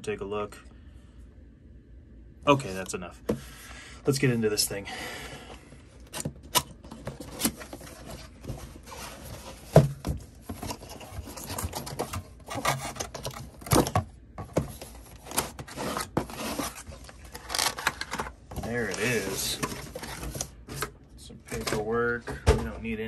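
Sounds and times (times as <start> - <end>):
cardboard box rubbing and scraping: 7.2 - 13.1, 15.1 - 17.2
knocks and thump: 22.2 - 22.9.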